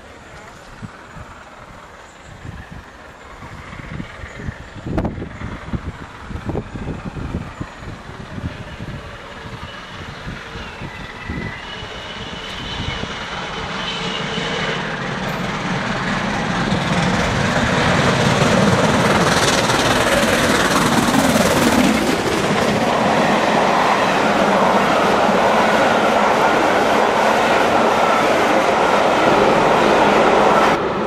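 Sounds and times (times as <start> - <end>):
steam locomotive passing: 0.0 - 31.0
wheels clacking on rails: 0.0 - 31.0.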